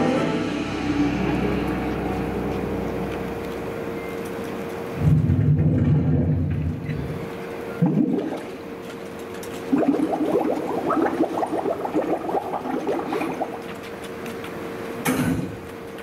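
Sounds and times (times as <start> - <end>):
bubbling water sound effect: 7.8 - 8.8, 9.6 - 13.8.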